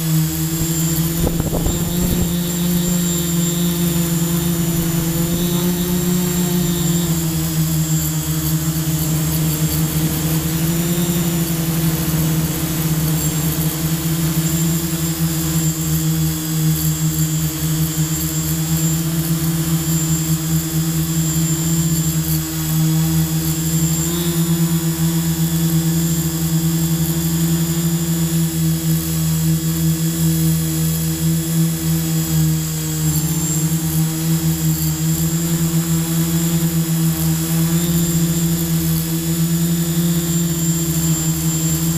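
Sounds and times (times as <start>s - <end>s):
drone propellers humming: 0.0s - 41.9s.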